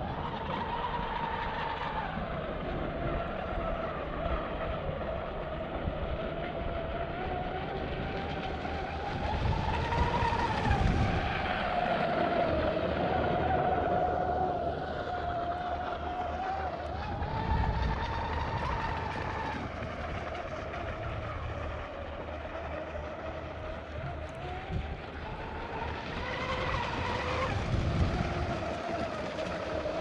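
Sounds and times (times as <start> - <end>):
rc boat motor whining: 0.0 - 30.0
rushing water: 6.3 - 30.0.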